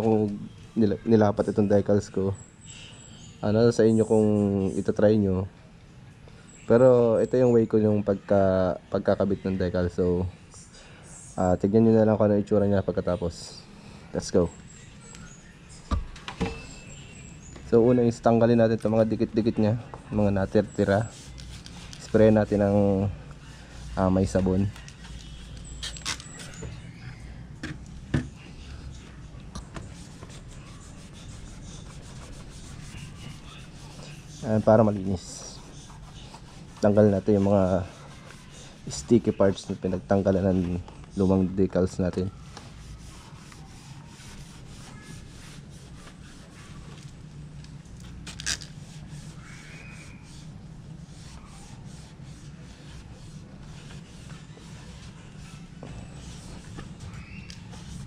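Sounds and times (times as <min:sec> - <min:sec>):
cloth rag rubbing on plastic: 0:17.8 - 0:26.6, 0:29.8 - 0:47.2, 0:48.1 - 0:58.0.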